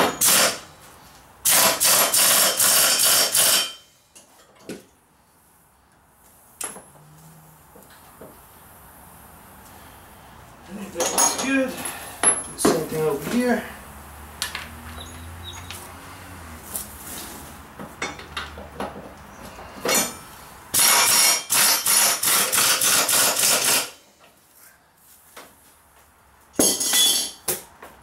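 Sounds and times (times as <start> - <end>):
air impact wrench hammering: 0.0 - 0.7, 1.4 - 3.9, 19.8 - 24.0, 26.6 - 27.6
metal tools clinking: 10.9 - 13.5, 26.6 - 27.4.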